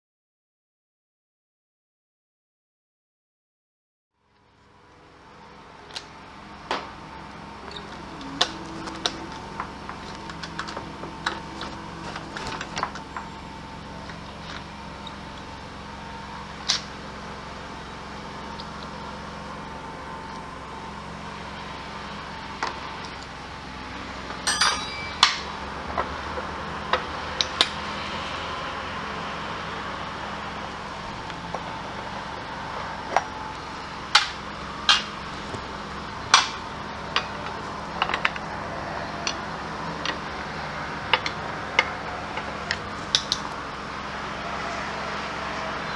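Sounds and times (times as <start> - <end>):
metallic hand tool clanks: 24.5 - 25.5.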